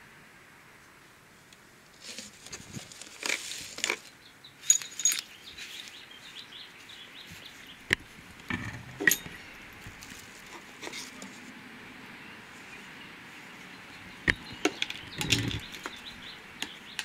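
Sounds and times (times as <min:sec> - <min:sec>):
plastic bags crinkling: 0:02.0 - 0:04.1
handling clatter: 0:04.6 - 0:05.4, 0:08.4 - 0:09.4.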